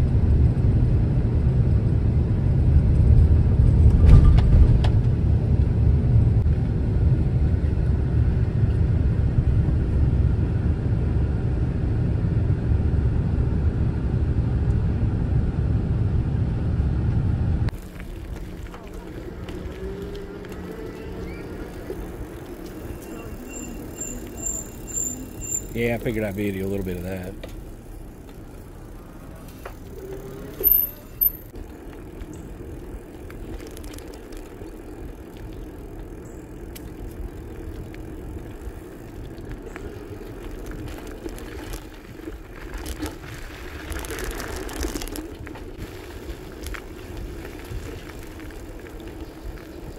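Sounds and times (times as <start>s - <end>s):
bicycle rolling on a trail: 0.0s - 49.9s
vehicle road and engine rumble: 0.0s - 49.9s
high-pitched bicycle squeaks: 18.8s - 26.2s, 29.1s - 31.6s.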